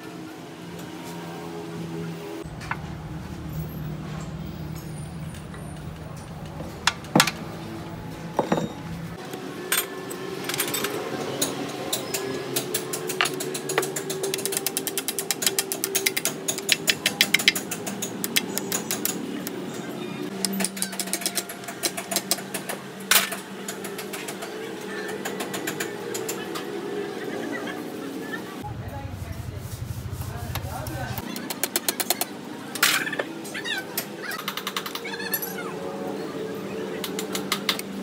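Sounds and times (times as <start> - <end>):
metal gearbox clicking and clinking: 9.6 - 19.2.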